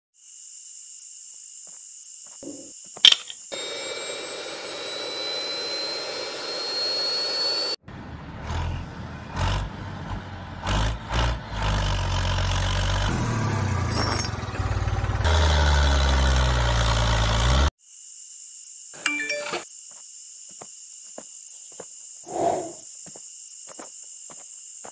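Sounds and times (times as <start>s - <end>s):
small electric motor whining: 3.5s - 7.8s.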